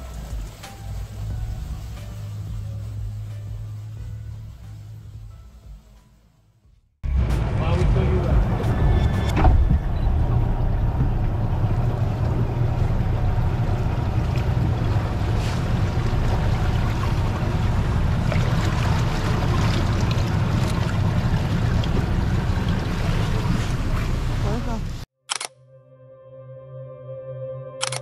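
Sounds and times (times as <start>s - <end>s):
wind: 0.0s - 5.6s, 7.0s - 25.6s, 27.7s - 28.0s
boat engine rumbling: 0.0s - 6.2s, 7.0s - 25.1s
sea noise: 7.1s - 25.1s.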